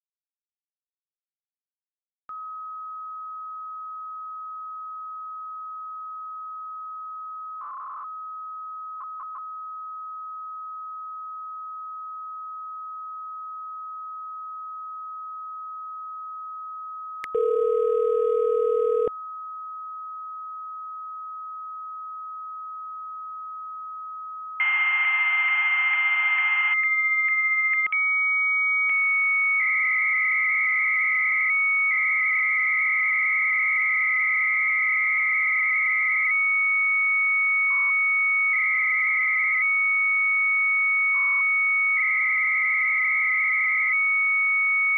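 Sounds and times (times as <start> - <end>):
modem carrier tone: 7.6 - 8.3, 17.2 - 19.1, 24.6 - 29.9
low phone ringing tone: 17.3 - 19.1
answering modem warbling tone: 17.4 - 19.1.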